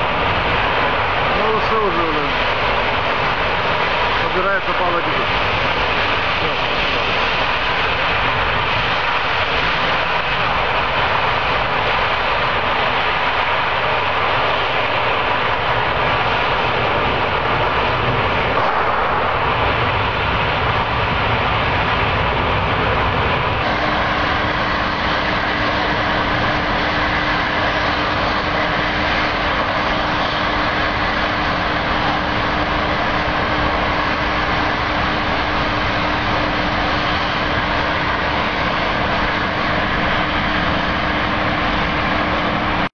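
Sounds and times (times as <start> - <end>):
constant hum: 0.0 - 42.9
gas jetting from well rushing: 0.0 - 42.9.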